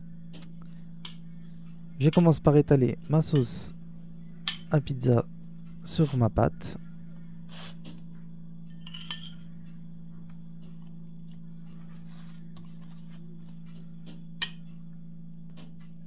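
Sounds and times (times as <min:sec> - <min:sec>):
steady low hum: 0:00.0 - 0:16.0
metal spoon scraping and clinking: 0:08.7 - 0:09.5.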